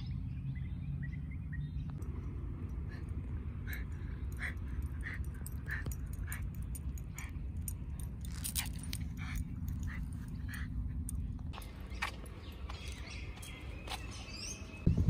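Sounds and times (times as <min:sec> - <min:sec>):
low background rumble: 0:00.0 - 0:15.0
dog collar tags jingling: 0:02.0 - 0:14.0.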